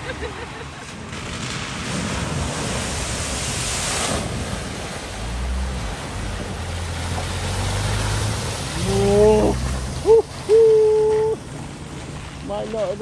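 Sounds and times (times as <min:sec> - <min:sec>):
water rushing and splashing: 0:00.0 - 0:13.0
car engine humming: 0:04.2 - 0:13.0.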